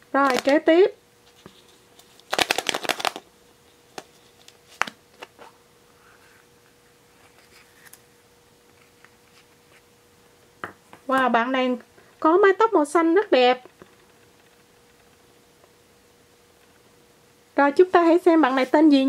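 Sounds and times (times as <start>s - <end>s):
plastic egg clicking and rattling: 2.2s - 3.2s.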